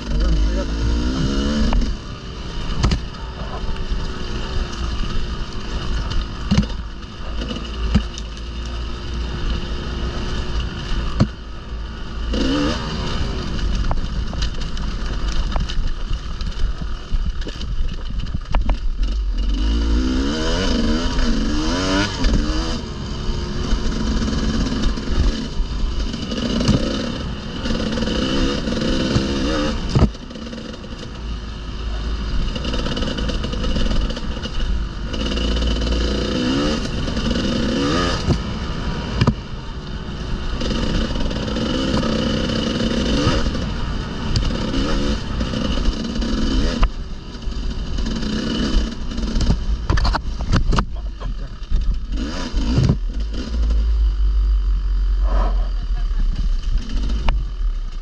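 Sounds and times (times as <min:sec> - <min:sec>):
motorcycle engine revving: 0:00.0 - 0:58.0
knocks and clatter: 0:05.8 - 0:08.8, 0:48.0 - 0:54.1.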